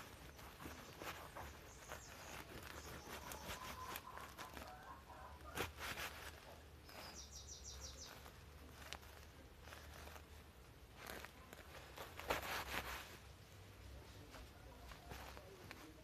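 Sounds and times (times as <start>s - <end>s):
bird chirping: 0.0s - 5.6s, 6.3s - 10.2s.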